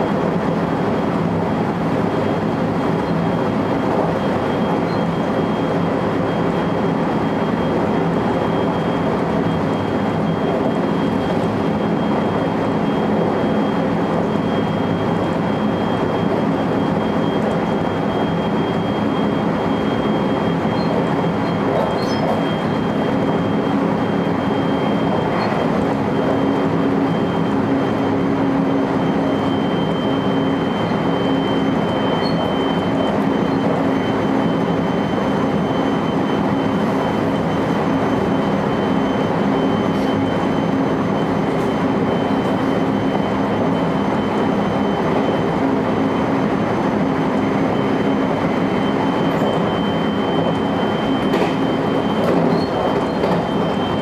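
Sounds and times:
high whine: 0.0 - 54.0
train wheels rumbling on rail: 0.0 - 54.0
rail joint clicks: 51.2 - 51.6, 52.2 - 53.7.

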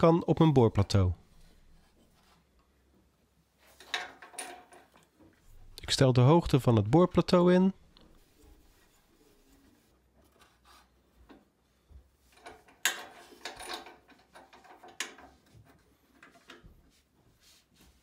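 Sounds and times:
clicks and knocks on metal table: 3.8 - 5.1, 12.4 - 15.5.

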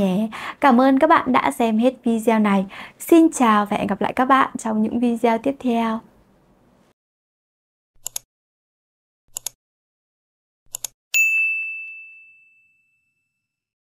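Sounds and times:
mouse clicks: 8.0 - 8.3, 10.7 - 10.9
notification bell ding: 11.2 - 13.6.

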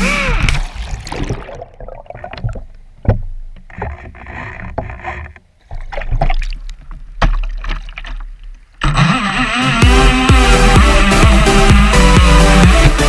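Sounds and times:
water sloshing and splashing: 0.3 - 8.8
knocks and thumps on hull: 2.2 - 8.6.

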